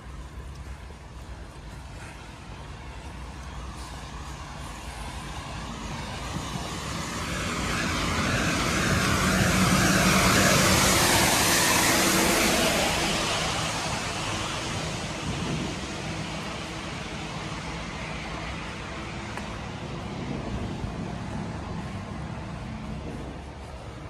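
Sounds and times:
lorry engine passing: 0.0s - 24.0s
tyres hissing on wet asphalt: 0.0s - 24.0s.

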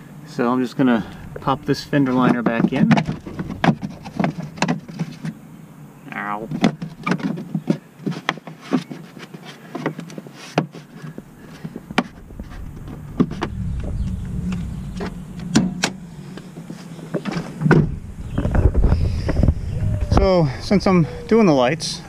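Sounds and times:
wind noise: 0.7s - 7.1s, 11.0s - 22.0s.

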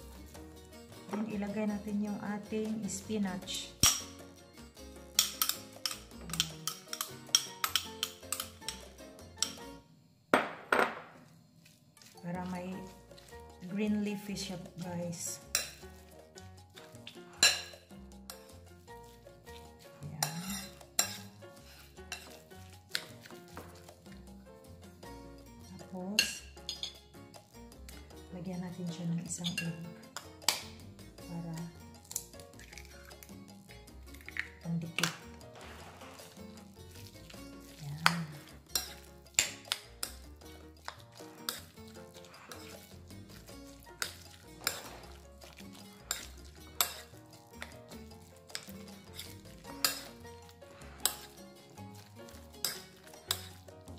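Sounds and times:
background music: 0.0s - 11.0s, 11.9s - 53.9s
metal utensil clinking on bowl: 3.8s - 4.2s, 5.1s - 9.6s, 17.0s - 18.4s, 20.2s - 23.9s, 26.2s - 27.0s, 29.4s - 30.7s, 34.2s - 53.9s
spoon scraping ceramic bowl: 5.1s - 9.7s, 14.6s - 16.2s, 16.8s - 24.1s, 26.2s - 27.0s, 34.2s - 53.9s.

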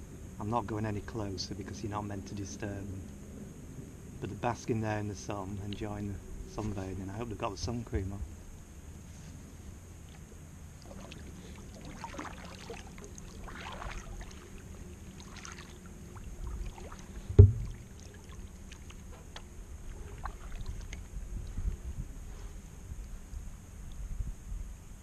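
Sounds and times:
paddle splashing in water: 10.8s - 19.4s, 20.1s - 21.1s
loud thump: 17.3s - 17.9s.

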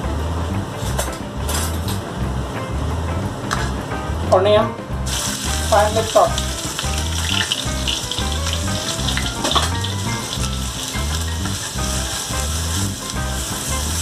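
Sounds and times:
background music with low beat: 0.0s - 14.0s
onion sizzling in hot oil: 5.0s - 14.0s.

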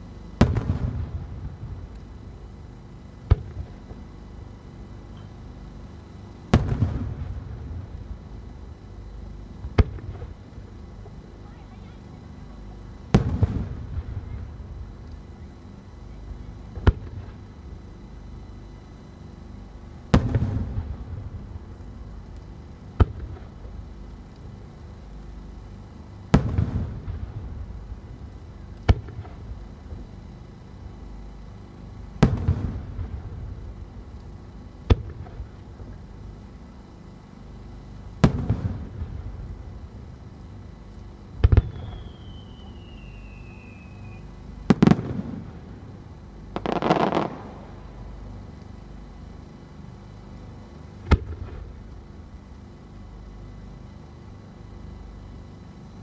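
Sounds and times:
dense firework crackling: 0.0s - 4.1s, 6.5s - 8.9s, 9.6s - 10.7s, 13.0s - 15.4s, 16.3s - 17.6s, 19.9s - 25.0s, 26.2s - 30.1s, 32.1s - 36.2s, 38.0s - 40.5s, 41.2s - 48.8s, 51.0s - 52.3s
firework bangs: 41.4s - 43.3s, 44.7s - 45.7s, 46.6s - 47.9s
falling whistle: 41.6s - 44.3s
firework shell booms: 46.6s - 47.8s.

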